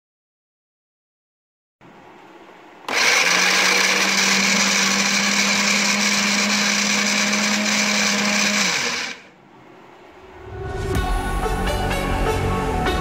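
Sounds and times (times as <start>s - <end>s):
food processor grinding: 2.9s - 9.3s
food processor drive hum: 2.9s - 9.4s.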